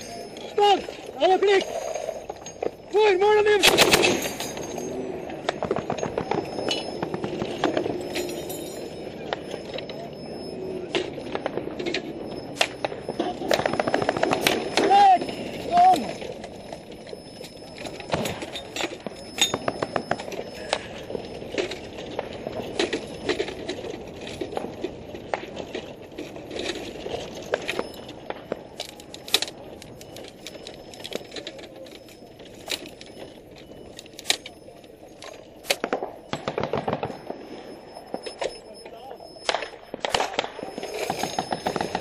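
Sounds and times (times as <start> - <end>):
background noise: 0.0 - 42.0
gunshots: 3.5 - 8.1, 12.6 - 16.2, 35.6 - 37.6, 39.4 - 42.0.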